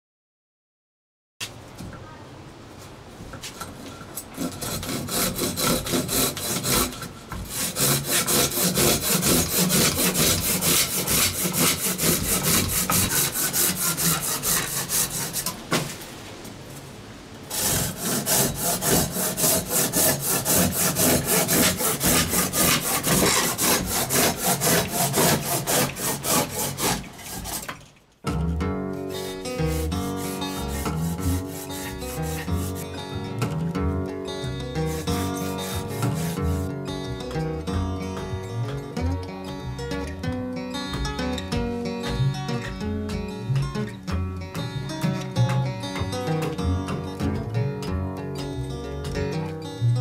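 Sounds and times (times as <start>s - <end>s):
hand saw cutting wood: 4.2s - 16.0s, 17.5s - 27.9s, 29.0s - 33.6s, 34.4s - 36.7s.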